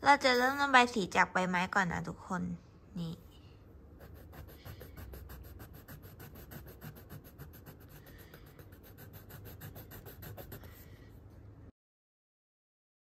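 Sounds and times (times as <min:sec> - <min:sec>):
pencil scratching on paper: 0:04.0 - 0:10.9.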